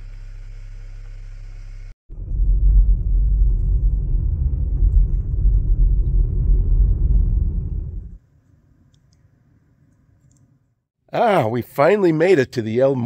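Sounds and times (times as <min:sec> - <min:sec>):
car rumbling on paved road: 0:00.0 - 0:08.2.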